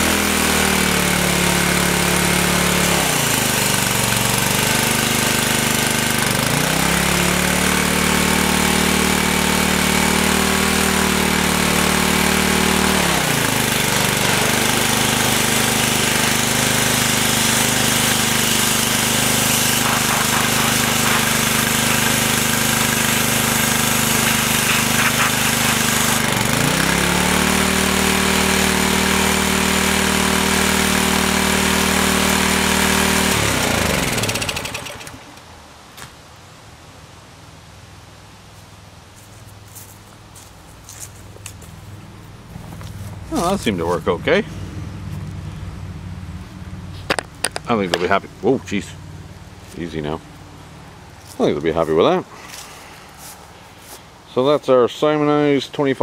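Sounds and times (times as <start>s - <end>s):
pressure washer engine running: 0.0s - 35.4s, 42.6s - 54.0s
high-pressure water spray hiss: 14.8s - 26.2s.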